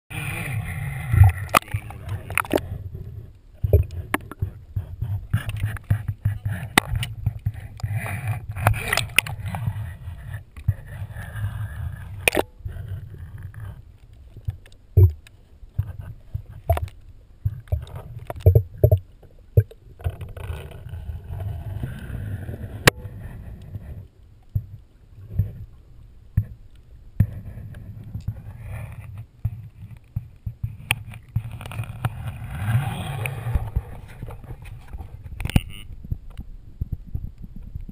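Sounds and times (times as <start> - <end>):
water sloshing and gurgling: 0.1 - 37.9.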